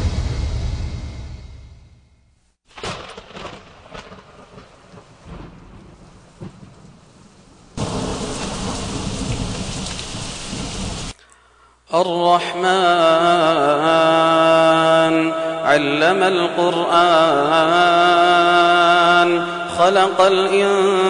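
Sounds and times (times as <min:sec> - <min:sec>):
thunder cracks: 0:00.0 - 0:11.1
heavy downpour: 0:02.7 - 0:11.2
rain: 0:02.7 - 0:11.2.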